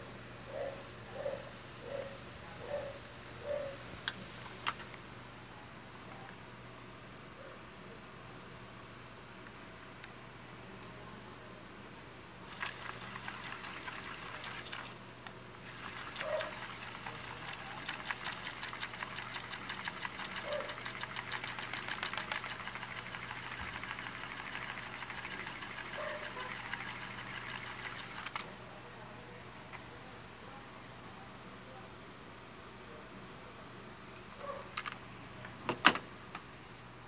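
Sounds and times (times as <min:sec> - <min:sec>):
cassette reels clicking and rattling: 0:12.5 - 0:15.0, 0:15.6 - 0:28.5.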